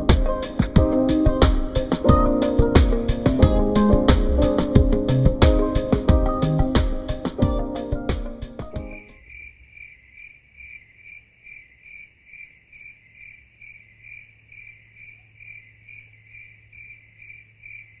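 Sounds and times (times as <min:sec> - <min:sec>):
cricket chirping: 0:08.9 - 0:18.0.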